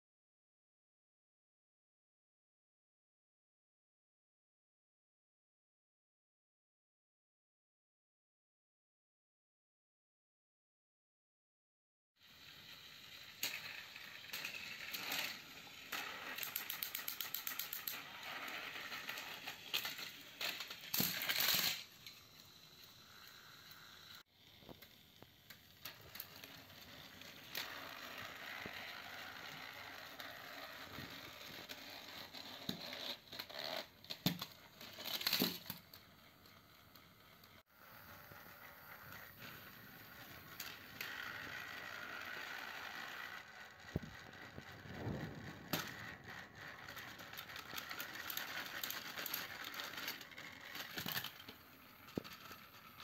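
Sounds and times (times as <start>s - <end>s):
plastic toy trains rattling: 12.4s - 53.0s.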